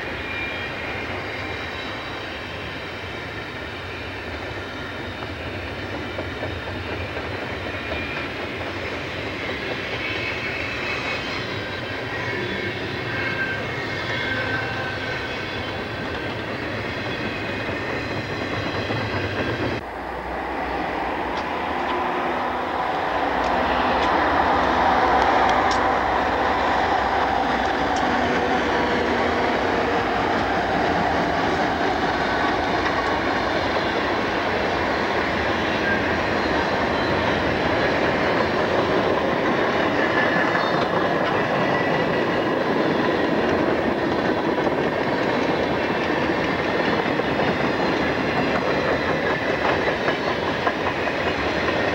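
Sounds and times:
freight train rumbling past: 0.0 - 51.9
wheels clacking over rail joints: 21.2 - 51.9.

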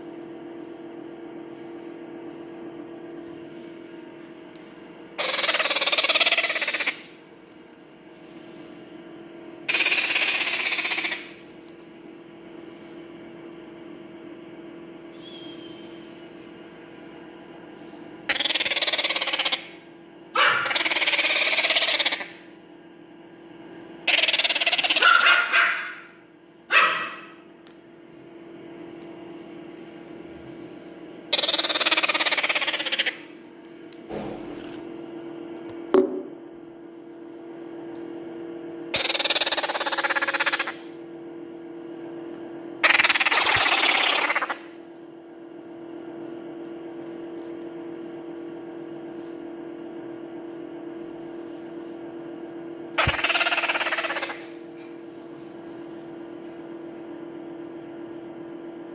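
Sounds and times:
steady low hum: 0.0 - 58.9
parrot chick begging rasp: 5.2 - 7.1, 9.6 - 11.4, 18.3 - 19.8, 20.4 - 22.4, 24.0 - 26.1, 26.7 - 27.4, 31.3 - 33.3, 38.9 - 40.9, 42.8 - 44.8, 53.0 - 54.6.

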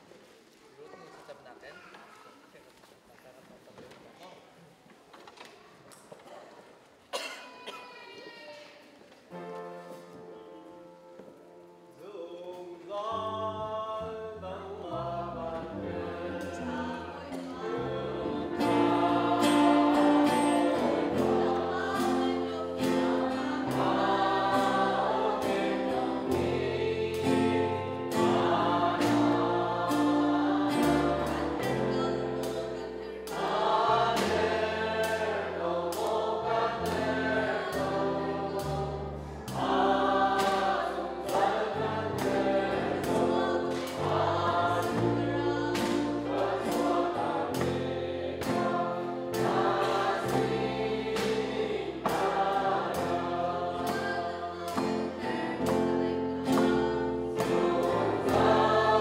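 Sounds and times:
group singing worship song: 12.0 - 59.0
guitar: 13.2 - 59.0.

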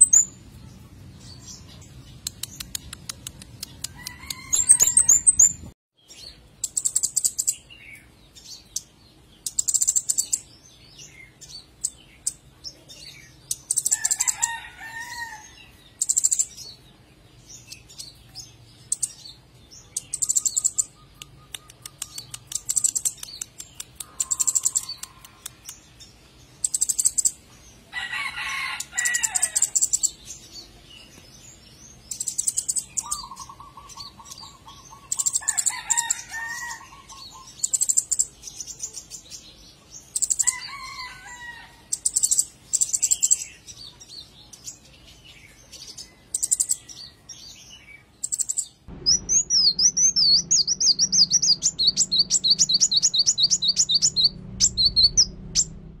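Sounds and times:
bird trilled song: 0.0 - 27.4, 28.8 - 40.8, 41.9 - 56.0
bird ticking calls: 20.0 - 25.8, 26.6 - 27.4, 32.1 - 36.1, 48.2 - 55.9.

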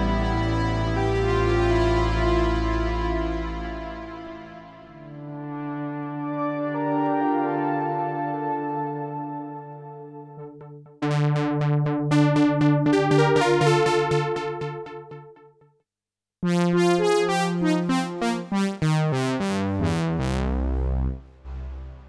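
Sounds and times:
synthesizer keyboard phrase: 7.4 - 15.4, 16.4 - 21.9
synthesizer stabs over bass line: 10.2 - 15.4, 16.4 - 22.0.

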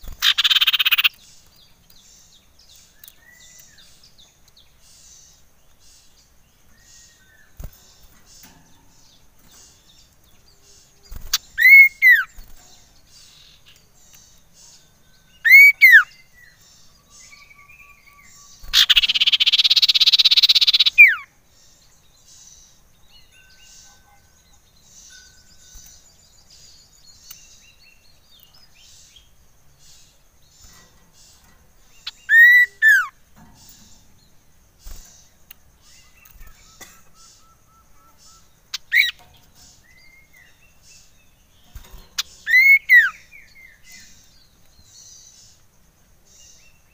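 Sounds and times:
faint background chirping: 0.0 - 46.9
bird whistled calls: 0.2 - 1.2, 11.3 - 12.3, 15.4 - 16.1, 18.7 - 21.3, 32.0 - 33.1, 42.2 - 43.2.

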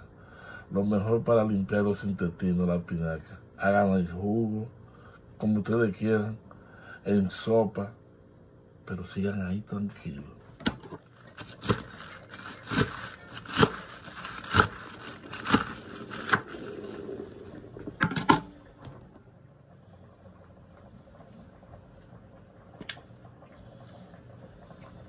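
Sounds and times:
leaves being cut: 11.4 - 16.8.

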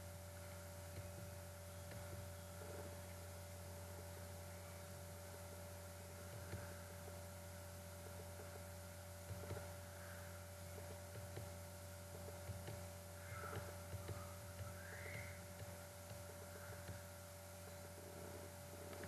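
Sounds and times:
faint steady tone: 0.0 - 19.0
low electrical hum: 0.0 - 19.0
faint ticks: 6.2 - 7.2, 9.2 - 19.0.

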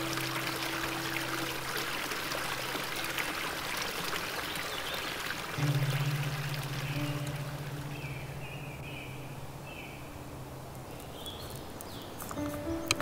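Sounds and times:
soft background music: 0.0 - 4.4, 5.6 - 13.0
stream splashing over rocks: 0.0 - 9.0.

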